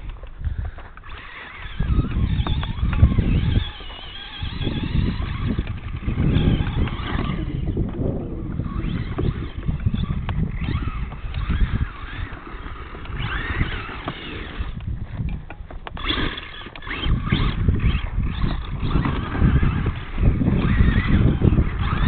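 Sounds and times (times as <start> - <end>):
low rumbling noise: 0.0 - 22.0
rc truck motor whining: 0.0 - 22.0.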